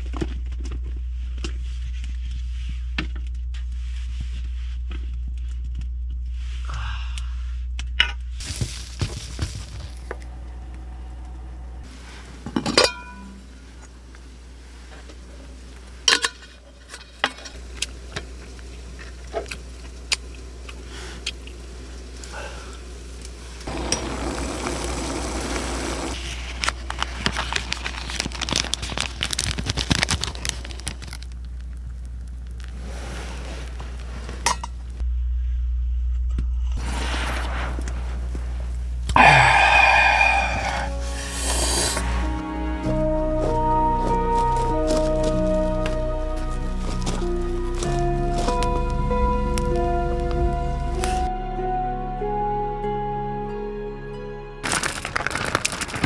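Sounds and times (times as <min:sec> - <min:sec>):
steady low hum: 0:00.0 - 0:27.4, 0:31.2 - 0:51.3
tableware clinking: 0:12.6 - 0:13.4
plastic packaging crinkling: 0:23.8 - 0:32.9, 0:44.1 - 0:49.0, 0:54.6 - 0:56.0.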